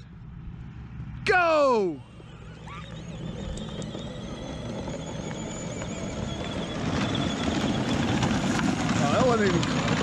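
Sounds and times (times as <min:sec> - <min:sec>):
thin high electric motor whine: 0:01.3 - 0:10.0
tyres crunching on gravel: 0:03.8 - 0:10.0.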